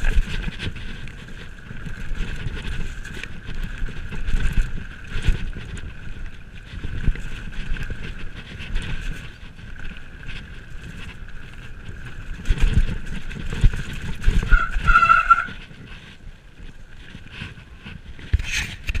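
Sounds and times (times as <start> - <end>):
bike tyres rumbling on dirt: 0.0 - 19.0
loud squeal: 14.5 - 15.6.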